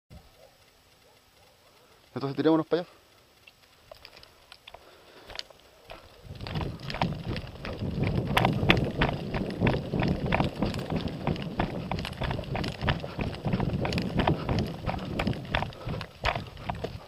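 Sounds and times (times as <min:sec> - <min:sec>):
running footsteps on grass: 0:03.8 - 0:17.0
wind rumbling on microphone: 0:05.9 - 0:17.0.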